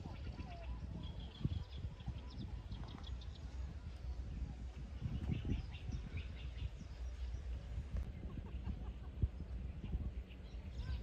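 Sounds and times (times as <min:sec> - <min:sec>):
small birds chirping: 0:00.0 - 0:11.0
wind rumble on microphone: 0:00.0 - 0:11.0.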